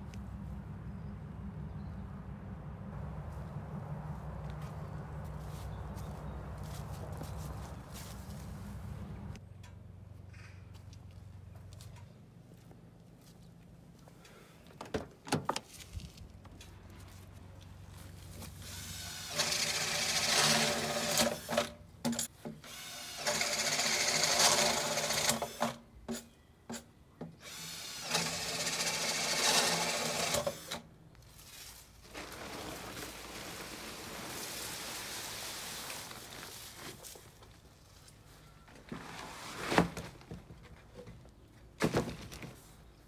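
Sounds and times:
cordless drill boring into pot: 0:18.7 - 0:21.7, 0:22.6 - 0:25.8, 0:27.4 - 0:30.8.

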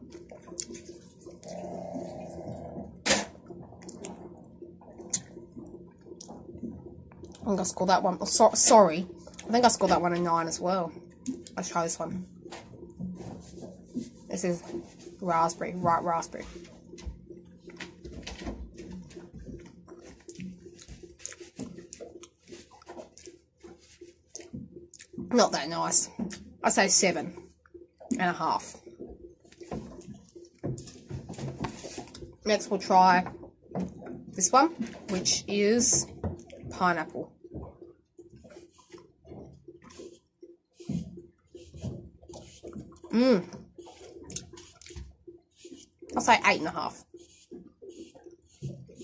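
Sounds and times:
person chewing with wet smacks: 0:00.0 - 0:07.5, 0:18.8 - 0:25.3, 0:28.8 - 0:31.0, 0:36.1 - 0:36.7, 0:37.5 - 0:46.2
wet chewing mouth smacks: 0:05.0 - 0:05.4.

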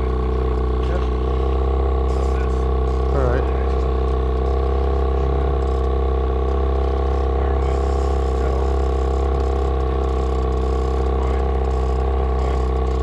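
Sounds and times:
outboard motor running: 0:00.0 - 0:13.0.

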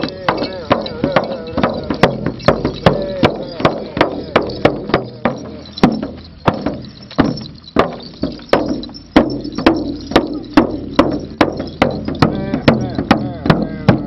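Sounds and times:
frame drum beaten with stick: 0:00.0 - 0:14.0.

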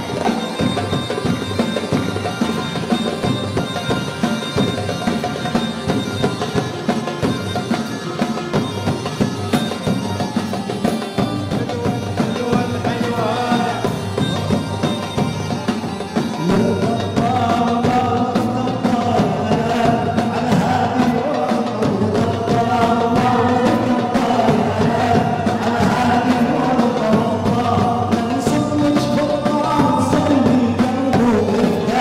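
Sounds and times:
strings and steady beat: 0:00.0 - 0:32.0
men singing in chorus: 0:11.0 - 0:15.3, 0:16.1 - 0:32.0.

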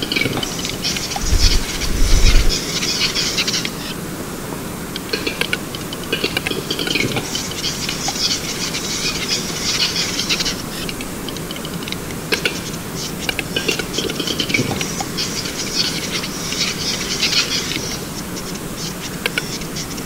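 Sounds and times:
grouse dry clicks: 0:00.0 - 0:04.0, 0:04.9 - 0:20.0
low rumble: 0:01.2 - 0:02.6.

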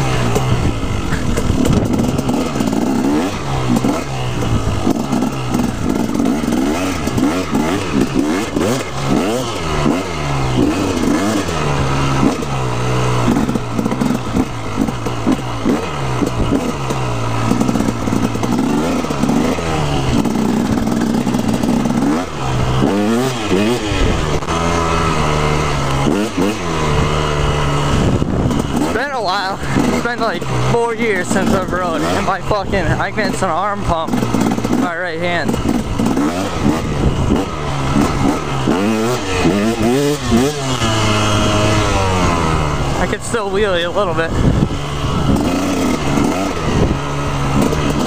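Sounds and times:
motorcycle engine revving: 0:00.0 - 0:48.0.

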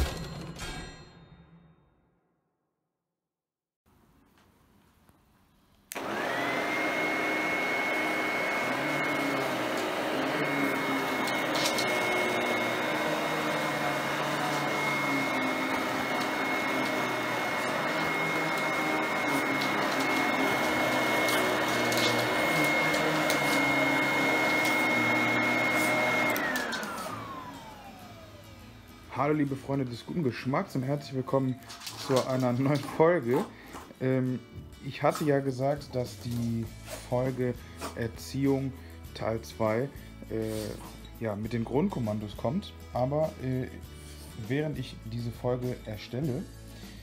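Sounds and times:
vacuum cleaner motor whining: 0:05.9 - 0:33.6.

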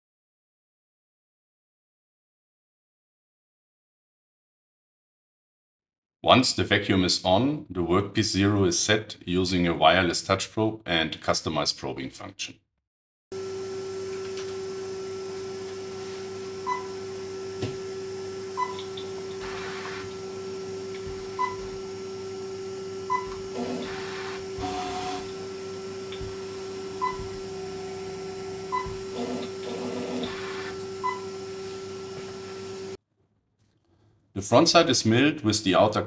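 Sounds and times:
vacuum pump hum: 0:13.4 - 0:33.0
machine axes whirring: 0:14.0 - 0:33.0
short beeps: 0:23.1 - 0:23.4, 0:27.0 - 0:28.0, 0:28.7 - 0:29.0.

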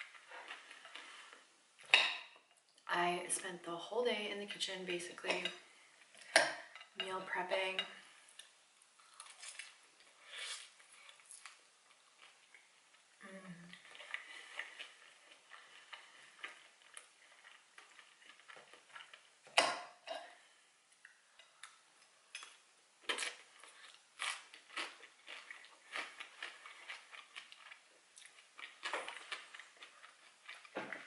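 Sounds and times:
chewing: 0:00.0 - 0:01.5, 0:13.7 - 0:19.5, 0:20.9 - 0:31.0.

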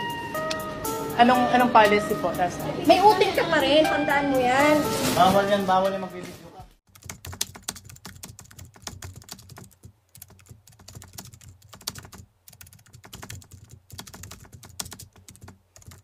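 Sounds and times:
computer keyboard typing clicks: 0:07.0 - 0:16.0.

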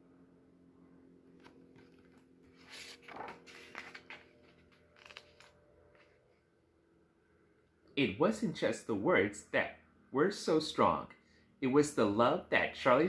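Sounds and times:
faint steady hum: 0:00.0 - 0:13.0
book pages rustling and flapping: 0:01.3 - 0:06.4.

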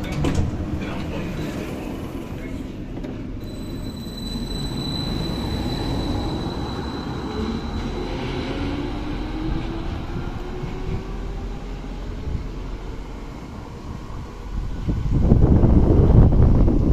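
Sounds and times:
wheels rumbling on rails: 0:00.0 - 0:16.9
tram traction drive whine: 0:03.0 - 0:16.9
high steady whistle: 0:03.4 - 0:08.6.

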